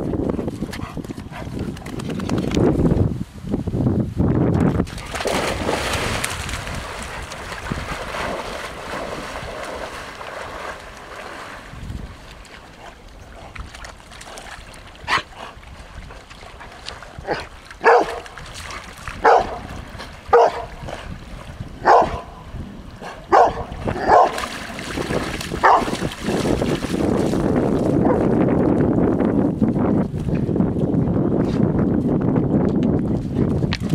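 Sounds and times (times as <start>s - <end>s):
dog barking: 17.3s - 18.2s, 19.2s - 19.6s, 20.3s - 20.7s, 21.8s - 22.3s, 23.3s - 24.4s, 25.6s - 25.9s.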